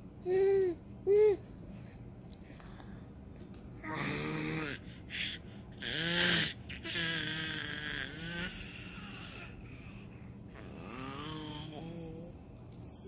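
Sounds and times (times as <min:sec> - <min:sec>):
baby babbling: 0:03.8 - 0:09.6, 0:10.6 - 0:12.3.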